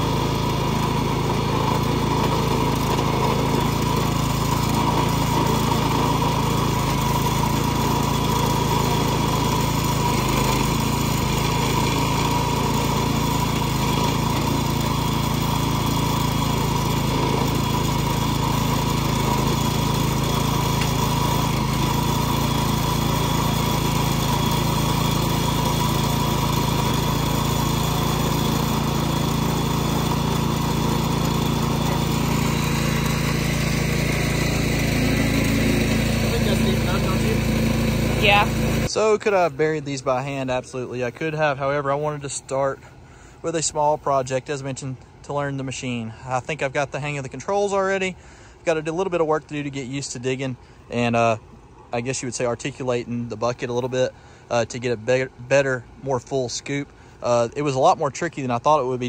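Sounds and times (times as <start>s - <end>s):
small gas engine running: 0.0s - 59.0s.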